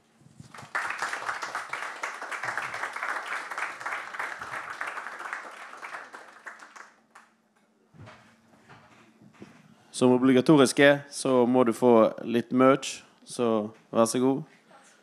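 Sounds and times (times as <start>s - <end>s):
audience applauding: 0.4s - 7.3s.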